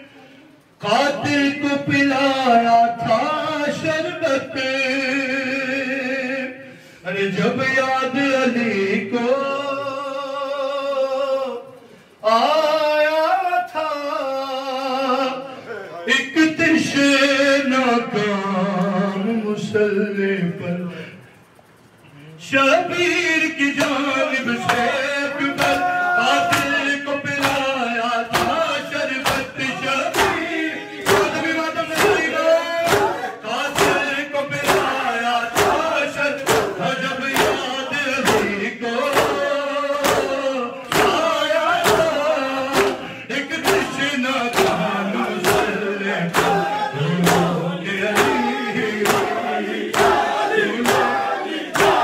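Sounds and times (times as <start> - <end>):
man singing into a microphone: 0.8 - 21.2, 22.4 - 49.3
group of men chanting: 22.6 - 52.0
hands slapping chests: 36.4 - 36.8, 42.7 - 43.0.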